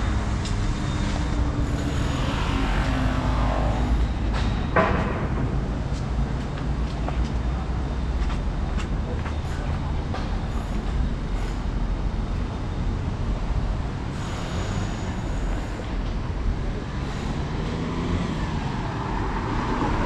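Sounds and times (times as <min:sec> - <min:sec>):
rail vehicle rumbling past: 0:00.0 - 0:12.1, 0:13.3 - 0:20.0
high wheel squeal: 0:00.6 - 0:04.8, 0:14.1 - 0:16.0.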